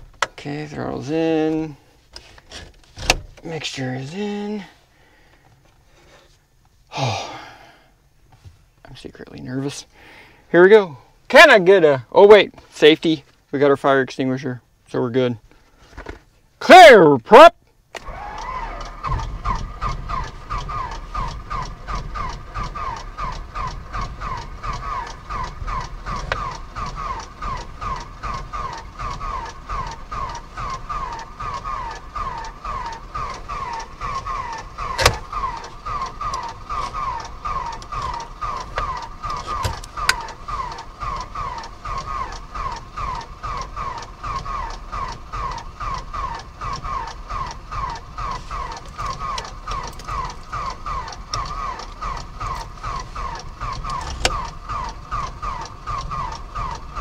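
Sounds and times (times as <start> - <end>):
aircraft engine cranking: 18.0 - 57.0.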